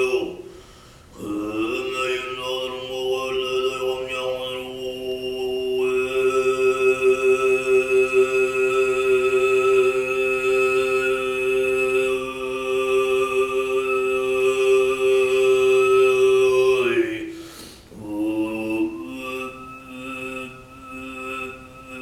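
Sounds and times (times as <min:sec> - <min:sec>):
throat singing drone: 0:00.0 - 0:22.0
person breathing: 0:00.4 - 0:01.2, 0:17.2 - 0:18.0.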